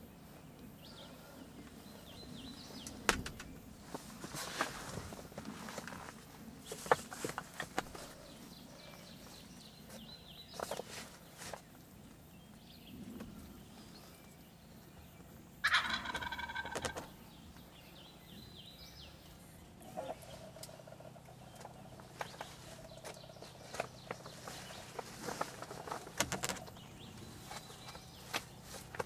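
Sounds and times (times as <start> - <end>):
faint clicks and rustles: 1.5 - 12.3, 19.9 - 29.0
turkey gobbling: 15.6 - 17.1.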